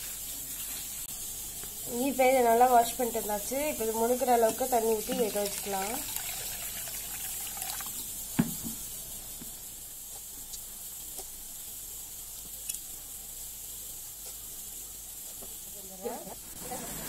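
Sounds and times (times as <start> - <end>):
water pouring into steel bowl: 4.2 - 8.1
sharp knock: 8.4 - 8.8.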